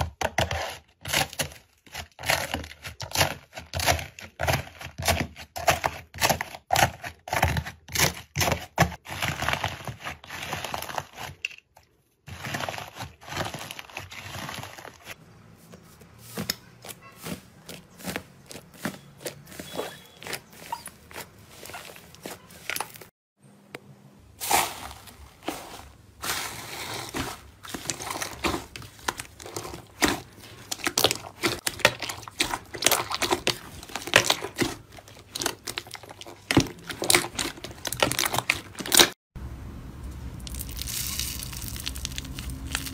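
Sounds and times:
hands kneading crackling slime: 12.3 - 23.1, 24.4 - 39.1.

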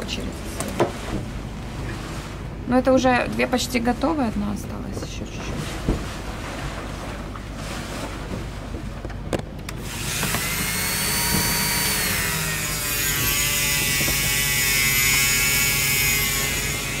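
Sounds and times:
rotary tool whining: 9.8 - 17.0.

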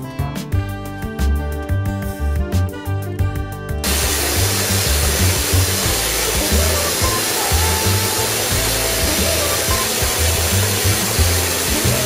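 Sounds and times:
high-voltage arc buzzing hiss: 3.8 - 12.0.

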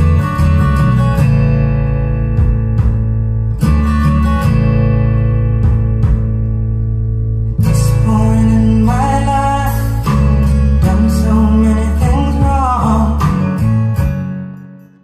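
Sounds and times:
acoustic guitar: 0.0 - 15.0
person singing: 7.6 - 14.0.

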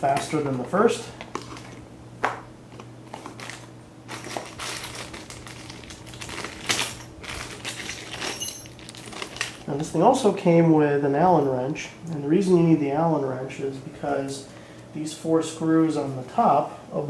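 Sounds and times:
plastic bag crinkling: 3.0 - 9.8
small metal hardware clinking: 6.6 - 9.7.

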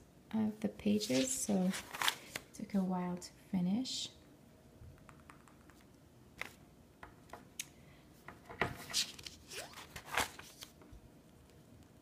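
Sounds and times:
paper rustling: 1.0 - 2.4, 8.8 - 10.8
sketchbook pages turning: 1.0 - 2.4, 8.8 - 10.8.

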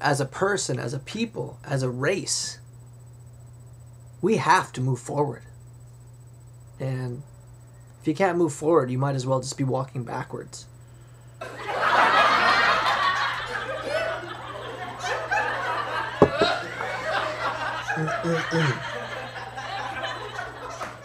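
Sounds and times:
breathy stifled laughter: 16.4 - 21.0.

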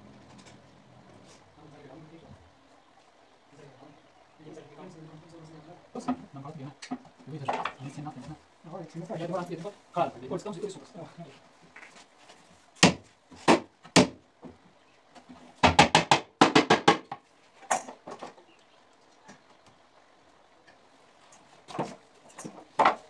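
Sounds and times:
sharp knocks and bangs: 12.8 - 14.2, 15.6 - 17.2.

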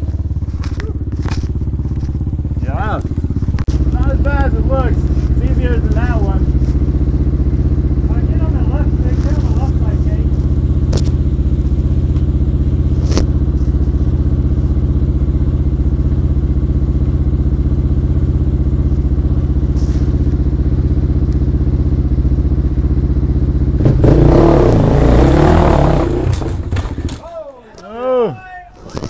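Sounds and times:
dirt bike engine revving: 0.0 - 14.6, 21.6 - 27.2
dirt bike engine idling: 0.0 - 29.0.

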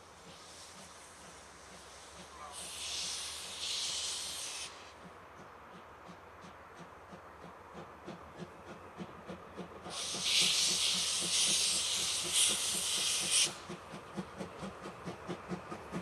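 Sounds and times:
steam hissing: 0.0 - 5.0, 8.4 - 16.0
steam locomotive chuffing: 0.0 - 16.0.

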